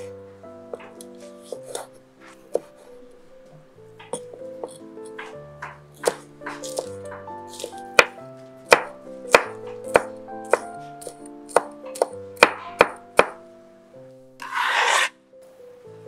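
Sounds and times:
background music: 0.0 - 16.0
knife chopping on wooden board: 4.1 - 13.4, 14.4 - 15.1.

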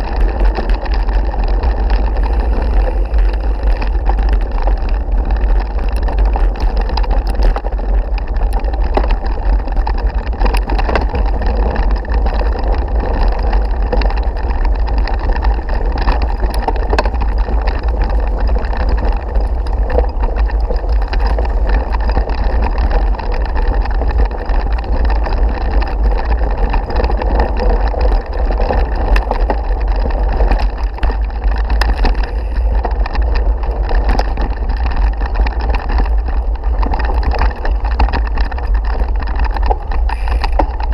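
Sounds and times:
tyres crunching on gravel: 0.0 - 40.9
wind rumble on microphone: 0.0 - 40.9.

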